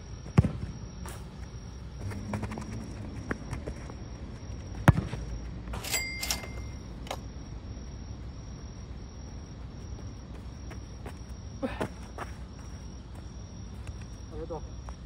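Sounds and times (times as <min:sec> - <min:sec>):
football kicked hard thud: 0:00.3 - 0:00.7, 0:04.8 - 0:05.2.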